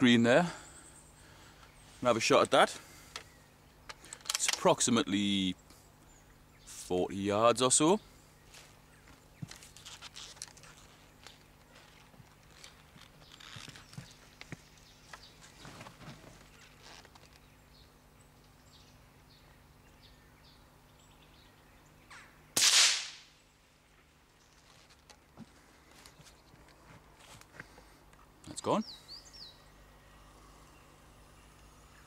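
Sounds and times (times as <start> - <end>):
faint rustles: 8.4 - 17.5
rifle shot: 22.6 - 23.3.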